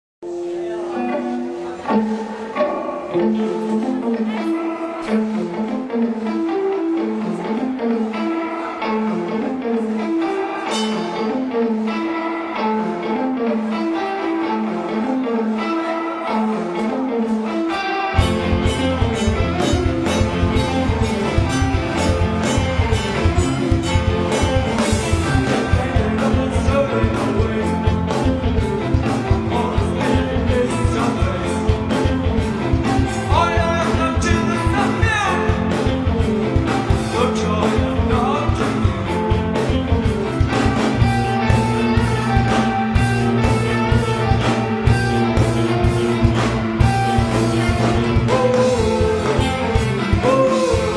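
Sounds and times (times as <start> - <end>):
rock band with drums: 0.2 - 50.9.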